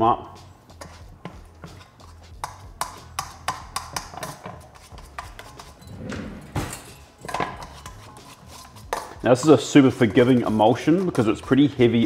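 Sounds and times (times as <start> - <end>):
fork tapping metal bowl: 2.4 - 5.8, 8.9 - 10.3.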